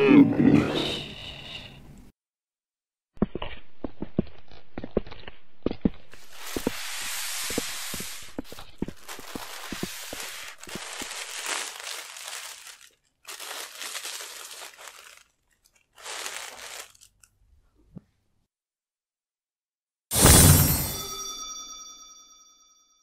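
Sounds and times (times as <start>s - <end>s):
crinkling and rustling: 4.3s - 18.1s.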